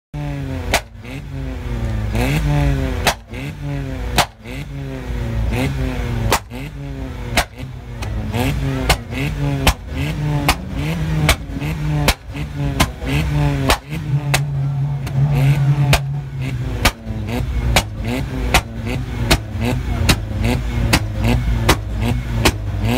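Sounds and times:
car engine revving: 0:00.2 - 0:22.9
exhaust pops and bangs: 0:00.6 - 0:01.0, 0:03.0 - 0:03.4, 0:04.1 - 0:04.5, 0:06.2 - 0:06.6, 0:07.3 - 0:22.8.

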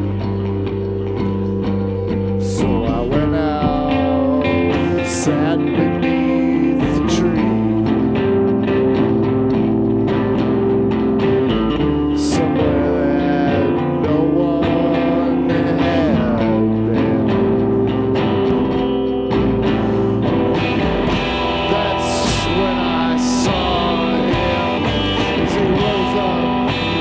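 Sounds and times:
amplified electric guitar: 0:00.0 - 0:27.0.

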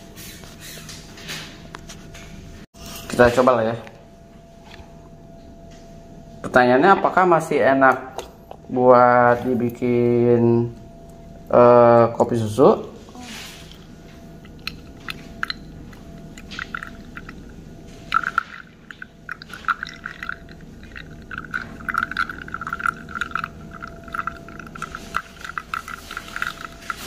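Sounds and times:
coffee stream splashing into pitcher: 0:18.1 - 0:27.0
small spattering ticks: 0:18.1 - 0:27.0.

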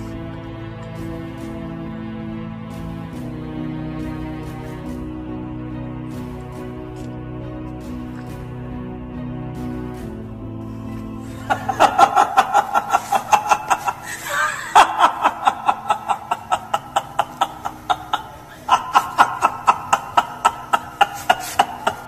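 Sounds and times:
man laughing loudly: 0:11.3 - 0:22.0.

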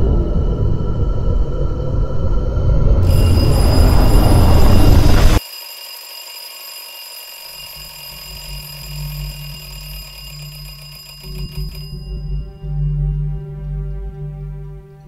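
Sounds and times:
alarm clock bells ringing: 0:03.0 - 0:13.4.

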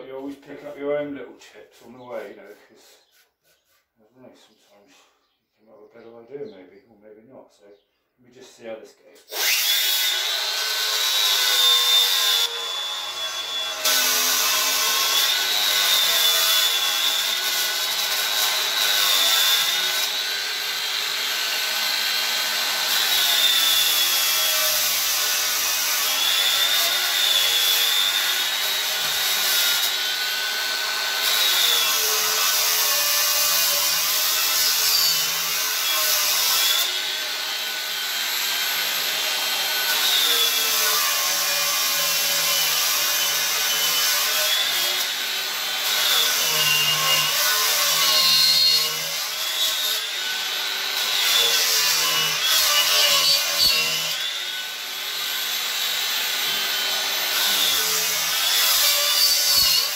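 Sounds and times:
wood being ground: 0:00.0 - 0:04.8, 0:09.3 - 0:59.9
angle grinder whining: 0:09.3 - 0:59.9.

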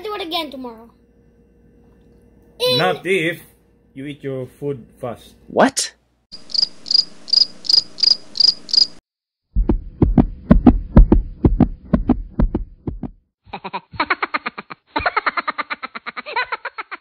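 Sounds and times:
cricket chirp sound effect: 0:06.4 - 0:09.0
low thumping beat: 0:09.5 - 0:13.2.

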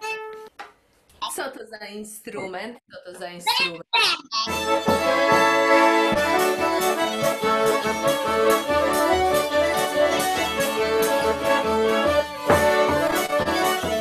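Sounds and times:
accordion: 0:04.4 - 0:14.0
fiddle: 0:04.5 - 0:14.0.

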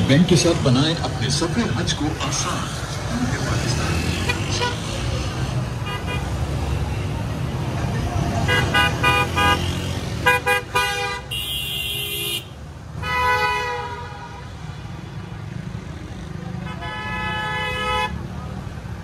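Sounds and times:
low rumble of engines: 0:00.0 - 0:19.0
vehicle horns honking: 0:05.8 - 0:06.4, 0:08.4 - 0:14.6, 0:16.6 - 0:18.2.

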